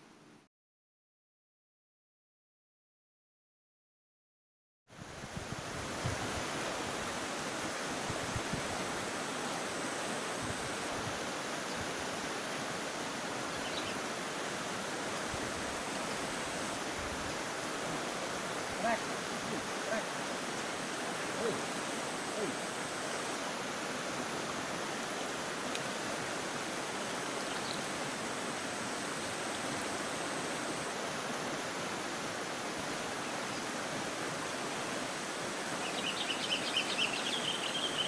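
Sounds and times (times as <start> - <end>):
river water rushing over rocks: 5.0 - 38.0.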